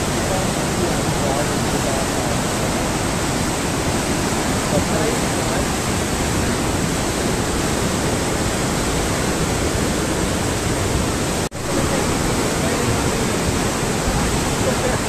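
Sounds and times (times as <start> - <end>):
rushing flooded river: 0.0 - 15.0.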